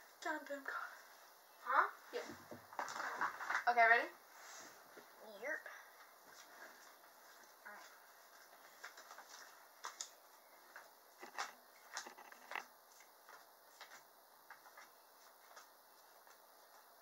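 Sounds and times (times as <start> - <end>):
faint clicks and taps: 8.4 - 16.9.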